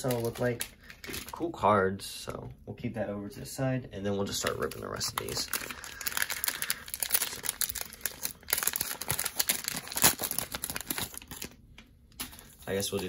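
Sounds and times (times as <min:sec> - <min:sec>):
plastic wrapper crinkling and tearing: 0:00.0 - 0:01.6, 0:04.3 - 0:13.0.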